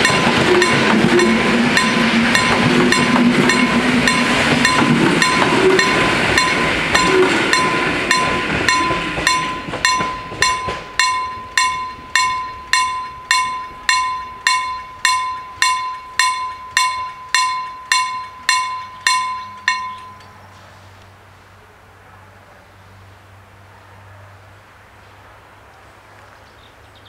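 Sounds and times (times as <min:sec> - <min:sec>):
level-crossing warning bell: 0:00.0 - 0:20.6
train rumble: 0:00.0 - 0:26.4.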